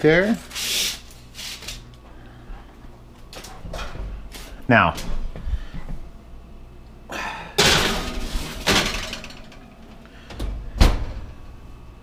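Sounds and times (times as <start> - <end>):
oven door scraping: 7.6 - 9.3
oven door banging with metallic ring: 7.6 - 9.7.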